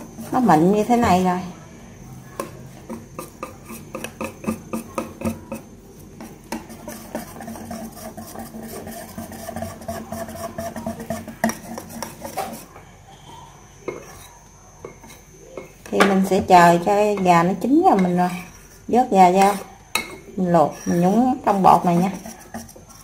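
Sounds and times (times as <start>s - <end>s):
whisk clicking against bowl: 2.4s - 12.7s, 21.5s - 23.0s.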